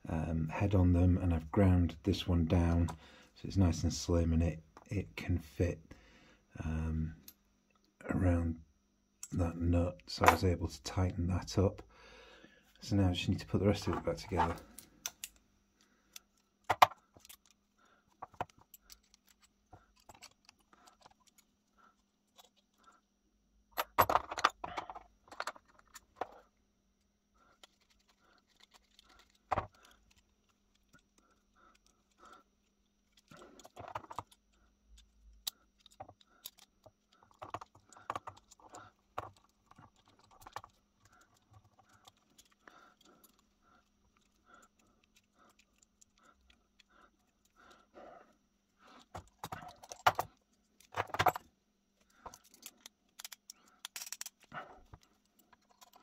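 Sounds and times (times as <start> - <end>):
metal parts and tools clinking: 16.1 - 22.9, 23.7 - 26.4, 27.6 - 47.6, 49.0 - 56.0.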